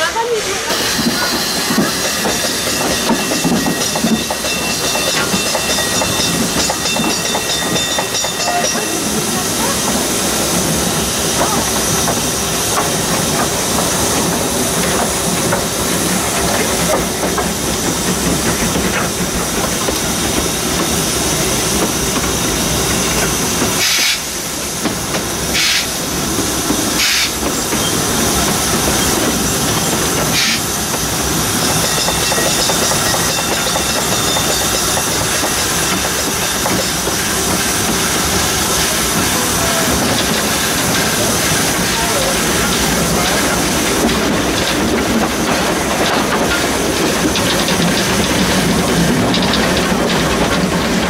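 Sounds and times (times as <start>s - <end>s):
steam hissing: 0.0s - 51.0s
short high steam hisses: 23.4s - 24.8s, 25.4s - 27.4s, 30.3s - 30.8s.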